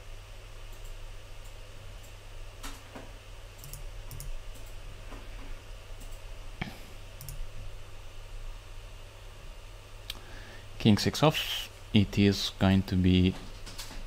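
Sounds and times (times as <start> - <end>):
low electrical hum: 0.0 - 14.0
computer mouse clicks: 3.6 - 4.8, 7.2 - 7.4.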